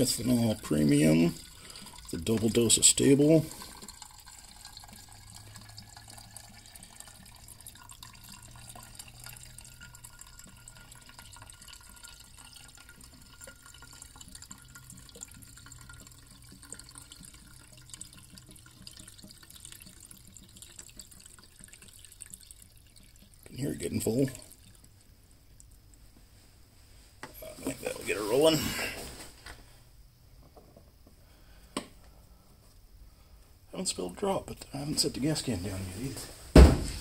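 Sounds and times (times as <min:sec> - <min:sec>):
fuel trickling into tank: 0:00.0 - 0:26.0, 0:27.3 - 0:29.8.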